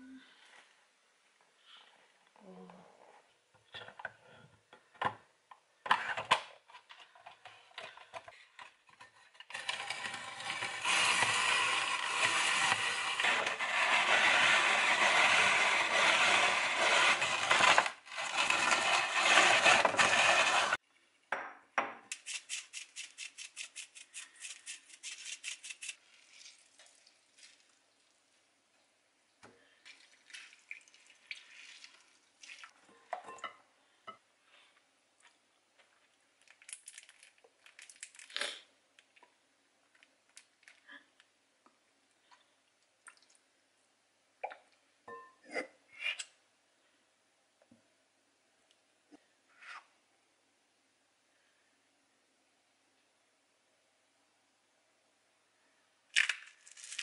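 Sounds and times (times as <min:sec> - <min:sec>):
drum grater rasping: 0:09.5 - 0:20.8.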